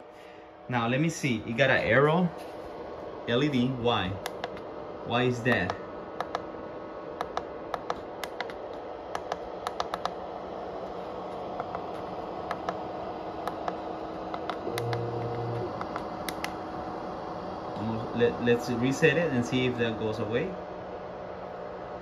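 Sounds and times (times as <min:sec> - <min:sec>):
steady hum: 0:00.0 - 0:22.0
push buttons clicking: 0:13.5 - 0:16.6
short low hum: 0:14.1 - 0:18.2.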